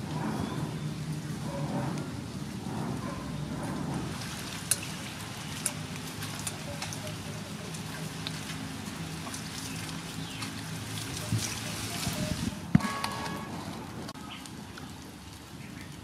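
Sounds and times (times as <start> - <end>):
water pouring and splashing: 0.0 - 16.0
water dripping: 3.9 - 12.1.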